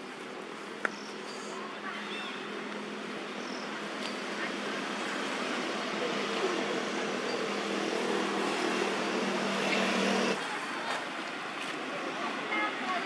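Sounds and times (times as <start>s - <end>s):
constant hiss: 3.9s - 10.4s
motor engine running: 5.0s - 10.4s.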